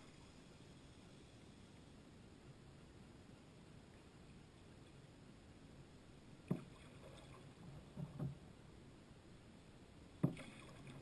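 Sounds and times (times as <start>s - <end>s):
paddle strokes in water: 10.2s - 11.0s.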